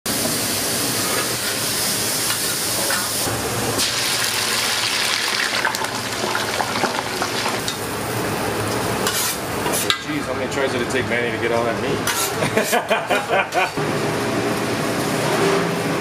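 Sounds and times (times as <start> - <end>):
fries bubbling in deep fryer: 0.1 - 9.8.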